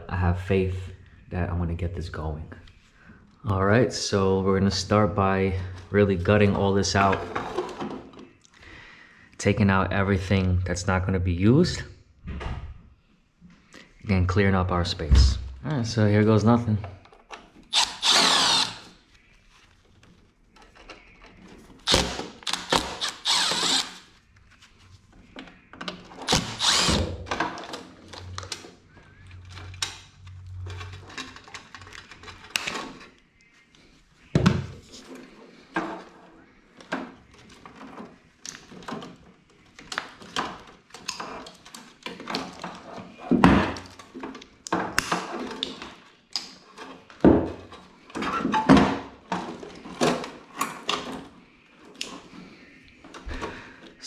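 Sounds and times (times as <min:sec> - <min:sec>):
cordless drill running: 0:17.7 - 0:18.9, 0:21.9 - 0:24.1, 0:26.3 - 0:27.1.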